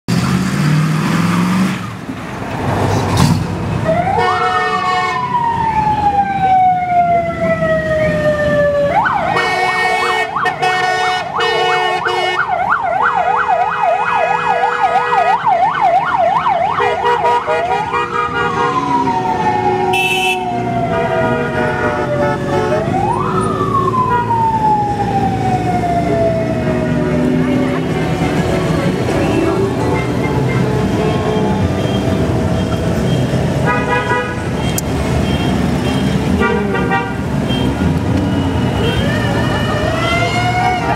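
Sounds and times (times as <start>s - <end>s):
passing motor noise: 17.8s - 21.3s
electronic siren wailing and yelping: 38.8s - 40.9s.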